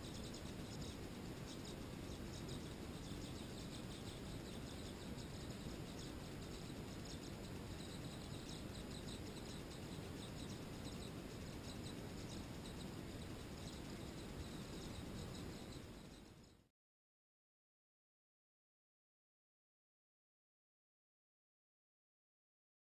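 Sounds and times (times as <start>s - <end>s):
low background rumble: 0.0s - 16.6s
swallows chirping: 0.0s - 16.6s.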